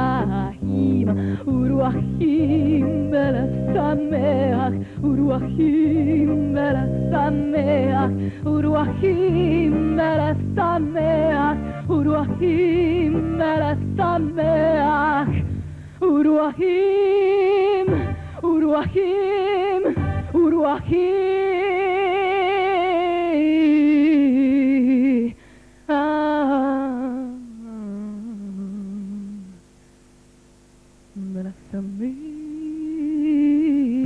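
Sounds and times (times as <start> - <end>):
low bass notes: 0.0 - 15.9
woman singing with vibrato: 0.0 - 29.8, 31.2 - 34.0.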